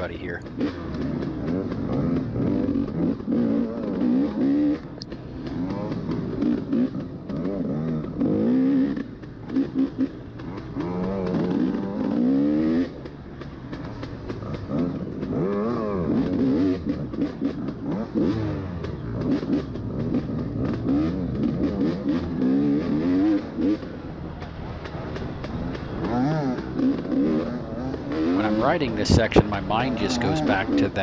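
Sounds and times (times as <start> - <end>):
bike rattling over rough ground: 0.0 - 31.0
dirt bike engine revving: 0.0 - 31.0.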